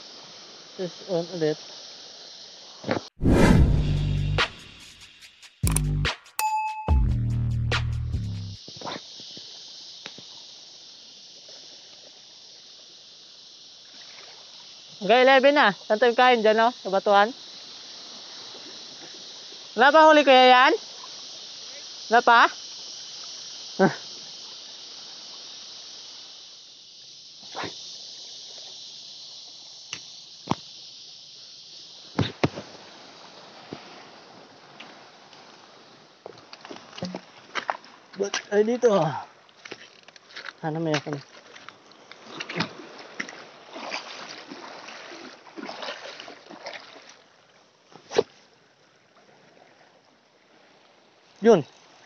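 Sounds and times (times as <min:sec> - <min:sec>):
high-pitched hiss: 0:00.0 - 0:45.4, 0:50.2 - 0:52.0
fishing reel clicks and knocks: 0:05.7 - 0:05.9
seawater splashing and sloshing: 0:32.1 - 0:52.0.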